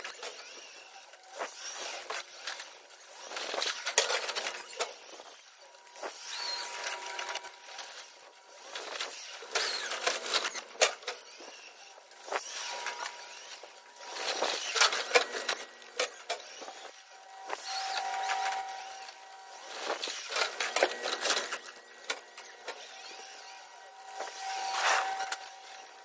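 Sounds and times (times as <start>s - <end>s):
high-pitched pulsing tone: 0.0s - 1.2s, 2.1s - 2.8s, 4.4s - 5.8s, 7.3s - 8.3s, 10.5s - 12.0s, 12.9s - 13.8s, 15.5s - 19.3s, 21.3s - 26.0s
low steady tone: 18.4s - 19.3s, 21.4s - 26.0s.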